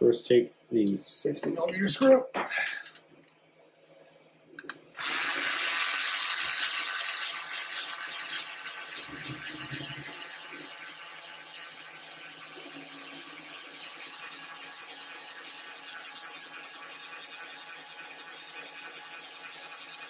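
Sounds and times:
electric screwdriver whirring: 5.0s - 11.6s.

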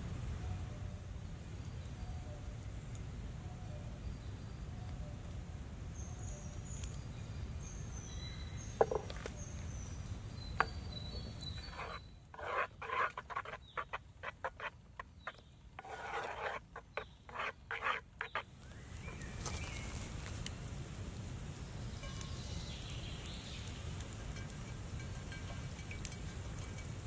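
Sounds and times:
birds singing: 6.0s - 20.0s
wooden spoon stirring batter: 10.5s - 19.2s.

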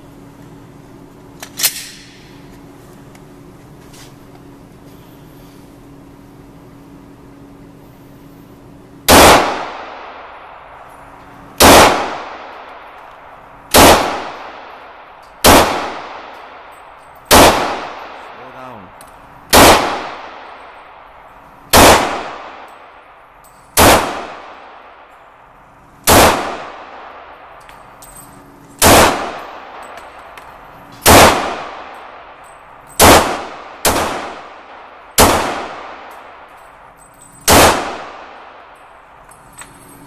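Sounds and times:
pistol shots echoing indoors: 15.4s - 16.7s, 17.3s - 18.4s, 19.5s - 20.8s, 23.8s - 24.9s, 33.0s - 36.4s, 37.4s - 38.7s.

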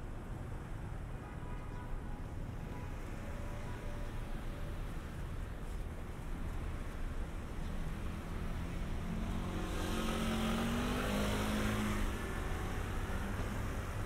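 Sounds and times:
city traffic hum: 0.0s - 14.0s
car passing by: 8.1s - 14.0s.

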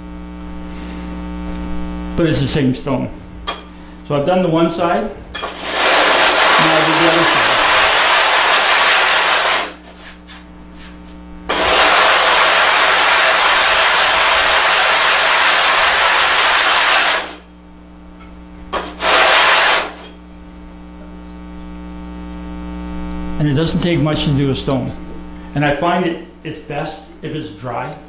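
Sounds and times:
low electrical hum: 0.0s - 28.0s
stone scraping on gritty glass: 5.4s - 6.7s.

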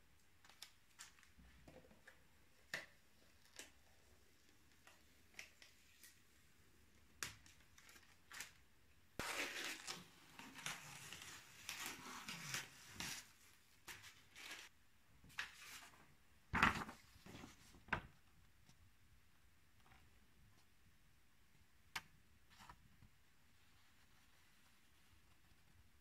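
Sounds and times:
paper rustling and crinkling: 7.2s - 8.6s, 9.2s - 14.7s, 15.3s - 18.0s.

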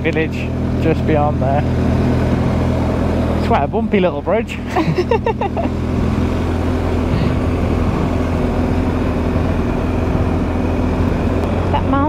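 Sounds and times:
motorcycle engine droning: 0.0s - 12.0s
wind and road noise: 0.0s - 12.0s.

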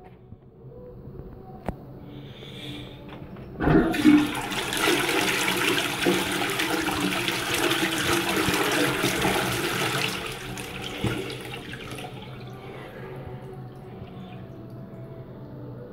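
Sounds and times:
faint hum: 0.0s - 15.9s
toilet flushing: 3.6s - 15.1s.

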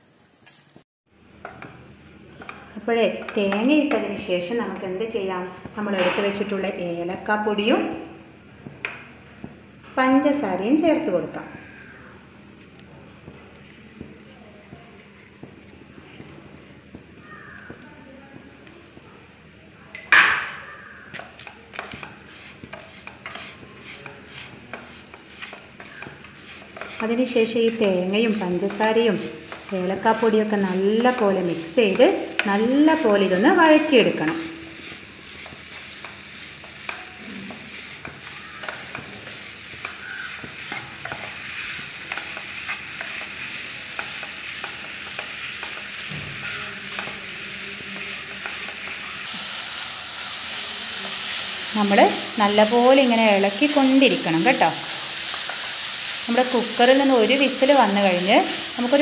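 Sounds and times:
low sizzle: 0.0s - 59.0s
spatula scraping a frying pan: 21.0s - 59.0s.

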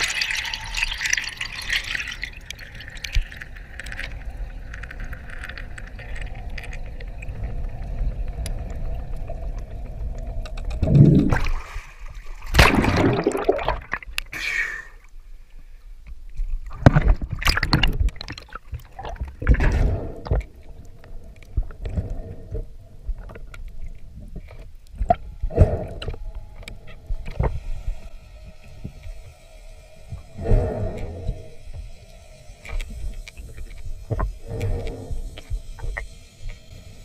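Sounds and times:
water sloshing and gurgling: 0.0s - 8.0s, 8.6s - 14.3s, 16.5s - 29.4s.

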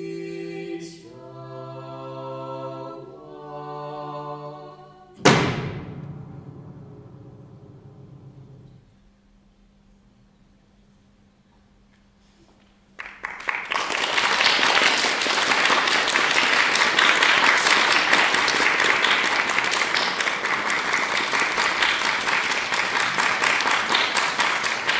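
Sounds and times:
audience applause: 13.0s - 24.9s.

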